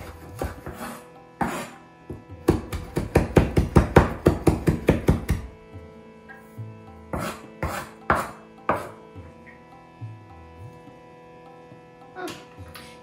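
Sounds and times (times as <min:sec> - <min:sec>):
knife chopping on wooden board: 0:00.0 - 0:05.5, 0:07.1 - 0:09.0.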